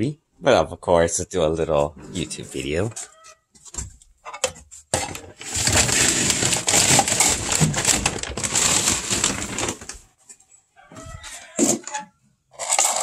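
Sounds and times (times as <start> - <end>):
feed bag rustling and crinkling: 5.4 - 10.1.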